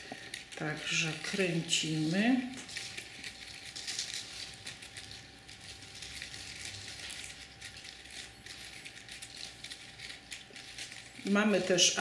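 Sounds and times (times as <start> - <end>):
crepe paper rustling: 0.0 - 12.0.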